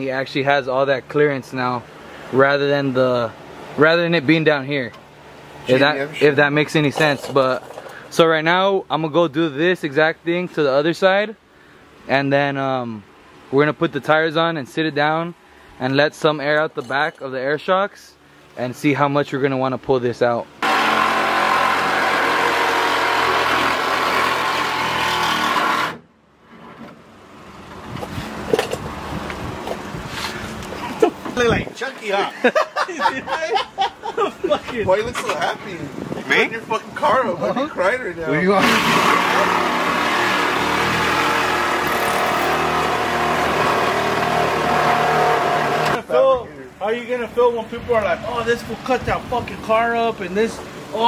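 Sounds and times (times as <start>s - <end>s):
reciprocating saw cutting metal: 20.6s - 26.0s, 38.6s - 46.0s.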